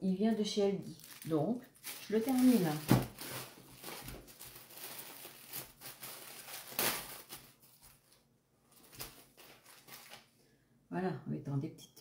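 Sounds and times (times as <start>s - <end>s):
plastic wrapping crinkling: 0.2s - 10.4s.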